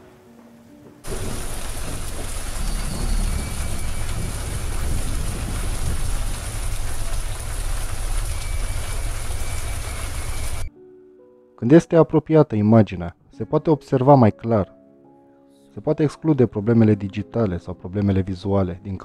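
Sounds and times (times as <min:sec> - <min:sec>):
heavy rain pouring: 0:01.1 - 0:10.7
truck engine rumble: 0:01.1 - 0:10.7.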